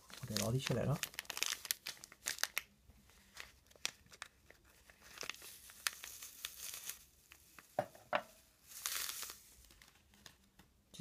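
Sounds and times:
synthetic fibres crinkling: 0:00.0 - 0:10.8.

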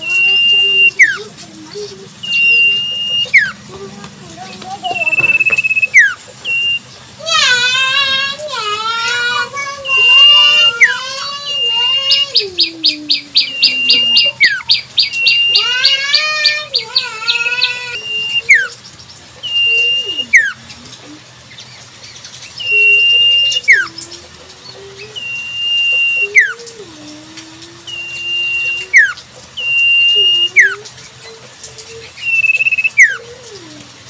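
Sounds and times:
bird whistled notes: 0:00.0 - 0:01.3, 0:02.2 - 0:03.6, 0:04.9 - 0:06.9, 0:09.9 - 0:16.0, 0:19.4 - 0:20.6, 0:22.6 - 0:24.0, 0:25.0 - 0:26.7, 0:27.9 - 0:30.9, 0:32.1 - 0:33.2
sharp downslurred bird notes: 0:00.0 - 0:03.8, 0:04.8 - 0:08.4, 0:09.1 - 0:21.2, 0:22.5 - 0:33.3.

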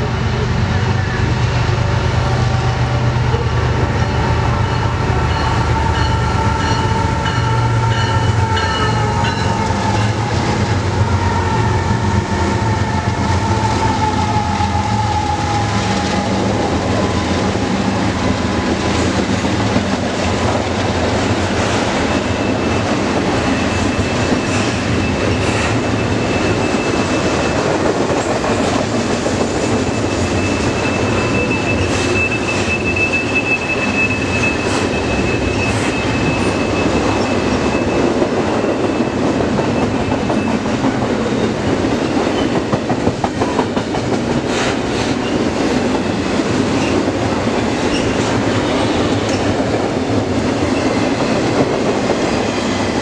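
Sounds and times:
locomotive engines rumbling: 0:00.0 - 0:53.0
train wheels rushing on rail: 0:00.0 - 0:53.0
wheel squeal: 0:29.6 - 0:40.7.

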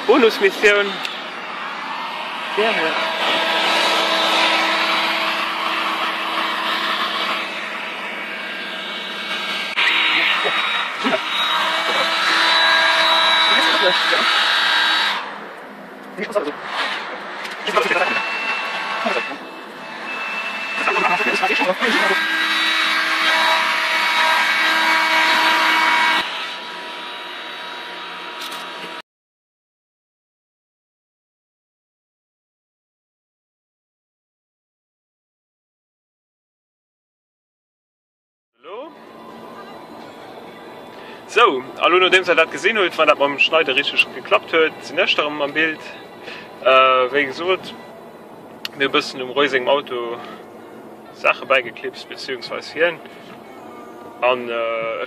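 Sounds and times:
motor hum: 0:00.0 - 0:29.0
heat gun blowing air: 0:02.2 - 0:15.3.

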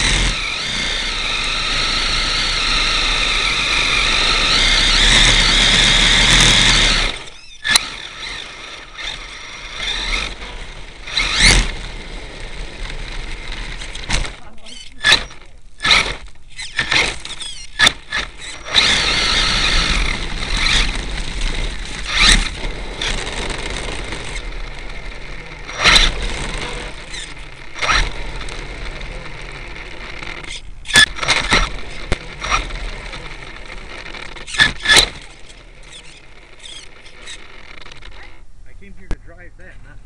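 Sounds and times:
wheel hub rattle: 0:00.0 - 0:38.5
knocks and clatters from landings: 0:30.1 - 0:38.1.

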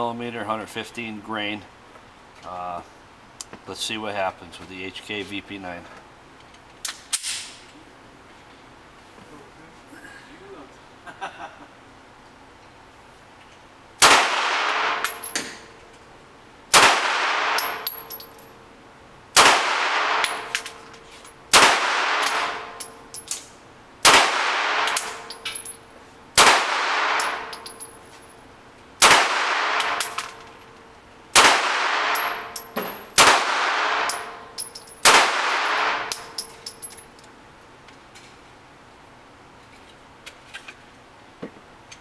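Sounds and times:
pistol shots echoing: 0:14.0 - 0:15.4, 0:16.7 - 0:18.1, 0:19.4 - 0:20.6, 0:21.5 - 0:22.8, 0:24.0 - 0:25.3, 0:26.4 - 0:27.6, 0:29.0 - 0:30.2, 0:31.4 - 0:32.6, 0:33.2 - 0:34.4, 0:35.0 - 0:36.3
brass casings clinking: 0:17.5 - 0:18.6, 0:24.8 - 0:25.9, 0:27.1 - 0:28.4, 0:32.0 - 0:33.2, 0:34.0 - 0:37.2.

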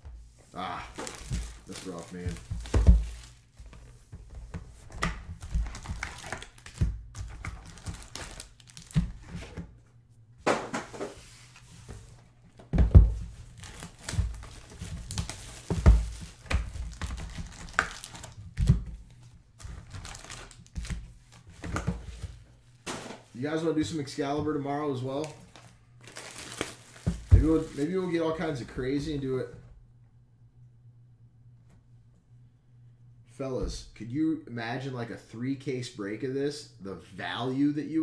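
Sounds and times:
wrappers crinkling and tearing: 0:00.5 - 0:03.6, 0:05.4 - 0:09.3, 0:13.4 - 0:18.5, 0:19.6 - 0:21.5, 0:25.0 - 0:28.1.

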